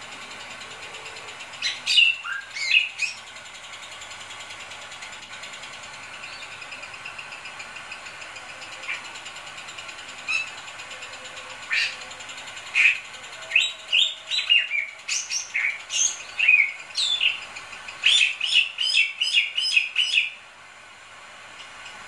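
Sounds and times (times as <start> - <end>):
bird whistling song: 1.6 - 3.2, 10.3 - 10.6, 11.7 - 12.0, 12.7 - 17.4, 18.0 - 20.4.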